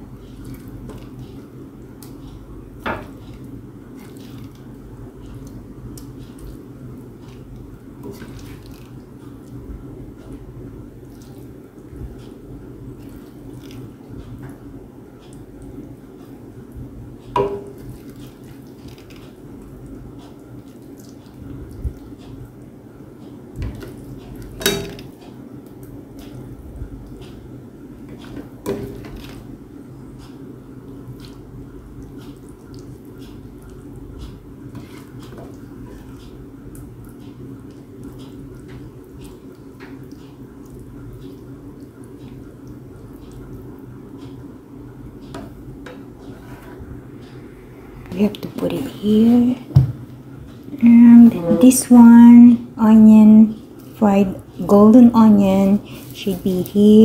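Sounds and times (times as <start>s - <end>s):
low steady hum: 0.0s - 57.0s
wet food squishing and scraping: 3.1s - 11.6s, 12.2s - 14.1s, 17.7s - 22.5s, 34.3s - 37.1s.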